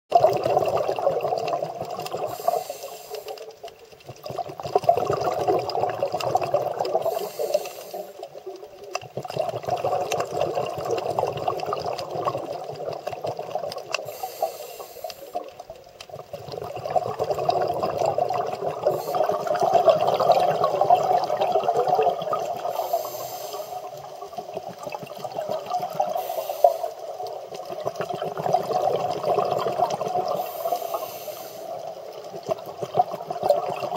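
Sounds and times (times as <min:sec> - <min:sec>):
underwater exhaled bubbles: 0:00.1 - 0:33.9
regulator hiss on inhale: 0:02.1 - 0:03.8, 0:06.9 - 0:08.5, 0:13.9 - 0:15.7, 0:18.8 - 0:19.6, 0:22.6 - 0:24.2, 0:26.0 - 0:27.6, 0:30.3 - 0:32.3.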